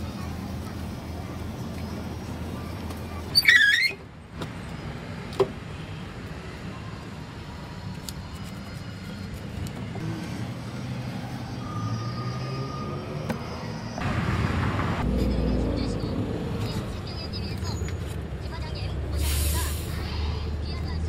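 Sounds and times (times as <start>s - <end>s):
low traffic rumble: 0.0s - 21.0s
waffle iron squeak and clatter: 3.3s - 4.0s.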